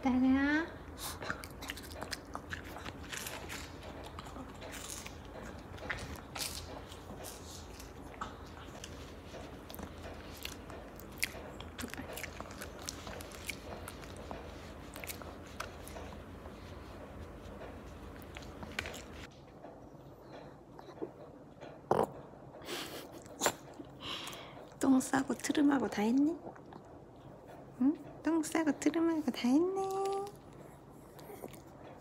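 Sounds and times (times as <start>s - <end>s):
dog crunching dried treat: 1.0s - 16.9s.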